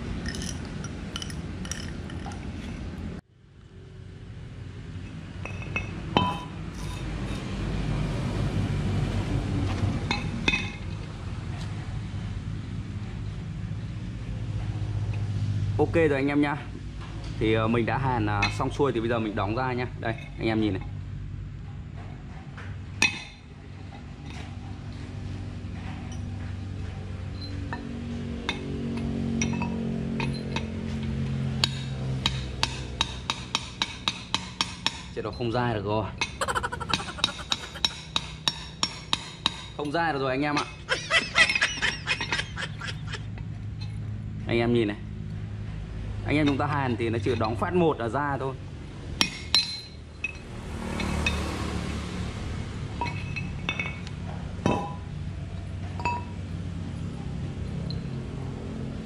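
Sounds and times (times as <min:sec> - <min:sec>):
metal clinks ringing on concrete: 0:49.2 - 0:50.4.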